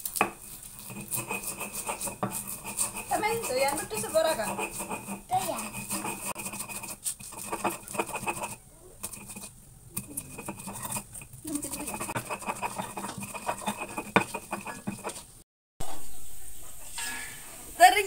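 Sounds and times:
stone pestle grinding in mortar: 0.0s - 15.4s.

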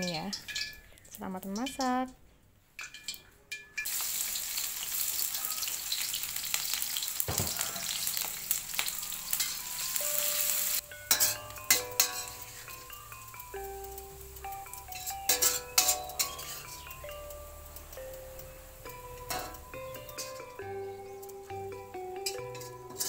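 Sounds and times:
vegetables sizzling in oil: 3.8s - 23.0s
light chiming music: 8.0s - 23.0s.

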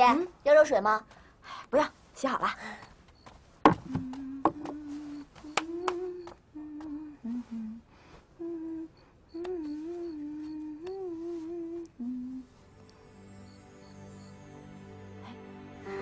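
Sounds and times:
woman humming: 3.7s - 12.6s, 15.2s - 16.0s.

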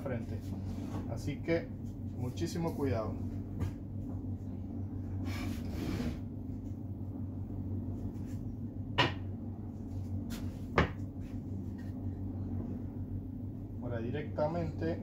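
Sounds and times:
steady low hum: 0.0s - 15.0s
wooden board sliding scrape: 5.3s - 6.2s.

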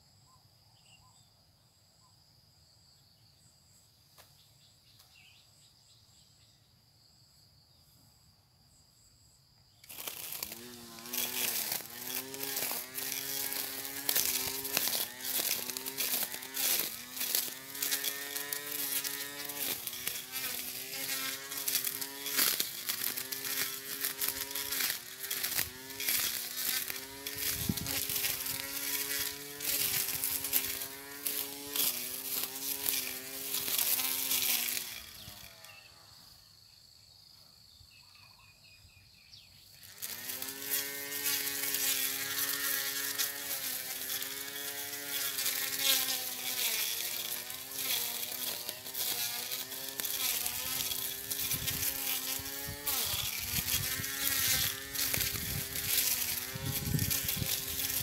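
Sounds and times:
electric lawn mower motor whining: 9.8s - 36.3s, 39.6s - 58.0s.

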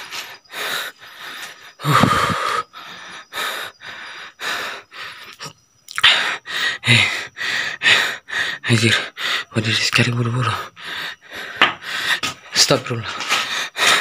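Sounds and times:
person breathing hard: 0.0s - 9.6s, 10.5s - 12.5s, 13.2s - 14.0s
person groaning: 1.8s - 2.6s.

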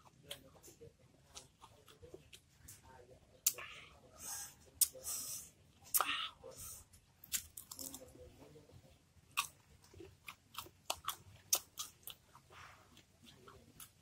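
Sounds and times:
crunchy chewing: 0.0s - 2.8s, 7.2s - 8.2s, 9.3s - 14.0s.

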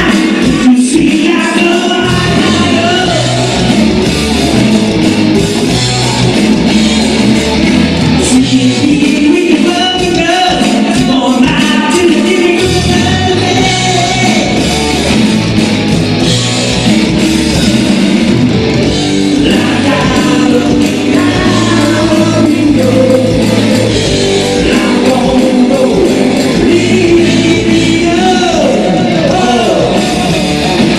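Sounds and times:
man singing into a microphone: 0.0s - 3.7s, 8.2s - 14.6s, 19.3s - 30.4s
bass guitar: 0.0s - 30.9s
drum kit: 0.0s - 30.9s
electric guitar: 0.0s - 30.9s.

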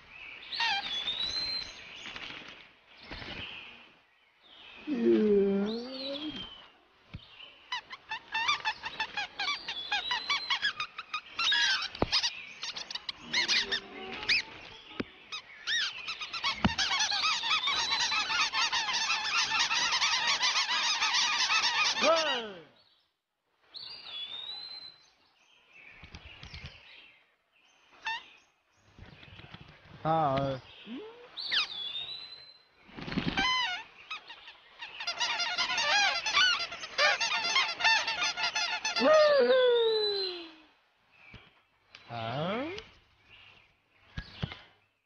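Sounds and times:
cartoon birds chattering and squawking: 7.7s - 14.6s, 15.3s - 22.6s, 33.3s - 40.3s.

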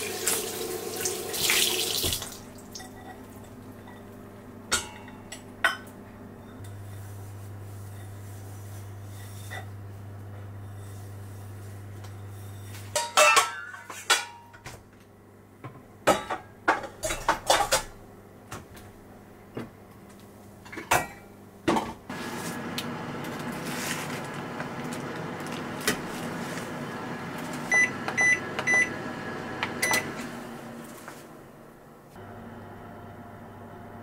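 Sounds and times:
microwave oven humming: 0.0s - 34.0s
kitchenware knocking and clinking: 13.0s - 14.6s.

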